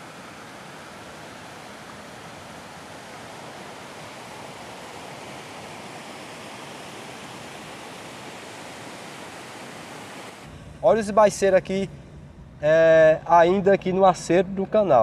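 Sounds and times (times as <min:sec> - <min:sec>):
floodwater rushing down a canal: 0:00.0 - 0:11.7.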